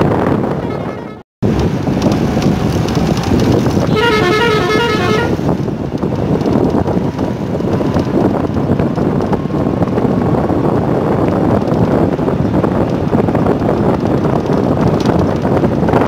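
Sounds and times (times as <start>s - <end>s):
vehicle road and engine noise: 0.0s - 16.0s
wind buffeting microphone: 0.0s - 16.0s
vehicle horn short notes: 3.8s - 5.4s.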